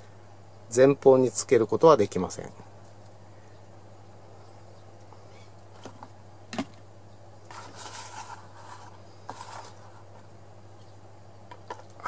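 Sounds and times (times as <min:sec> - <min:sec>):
rustling and scraping of box: 0:07.4 - 0:10.4.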